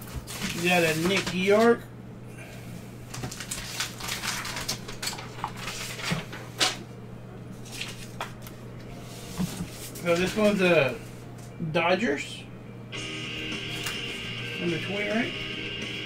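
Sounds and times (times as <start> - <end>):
plastic sleeves crinkling: 0.0 - 1.8, 3.1 - 6.5, 7.6 - 10.6
low electrical hum: 0.0 - 16.0.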